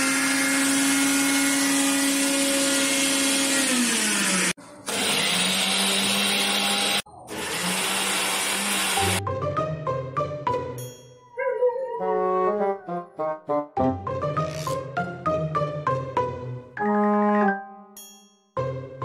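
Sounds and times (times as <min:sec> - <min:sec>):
appliance motor whirring: 0:00.0 - 0:09.2.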